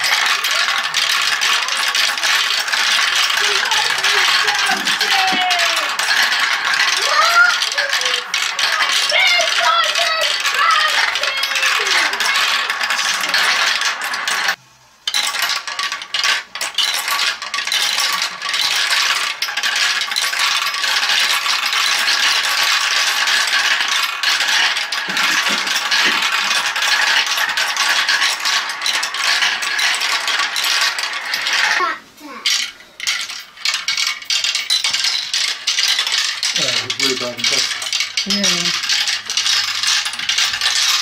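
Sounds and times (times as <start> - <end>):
marbles rattling through marble run: 0.0 - 41.0.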